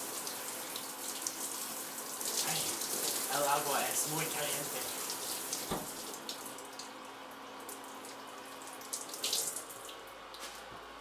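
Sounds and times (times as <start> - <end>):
shower water spraying: 0.0 - 6.6, 8.6 - 9.9.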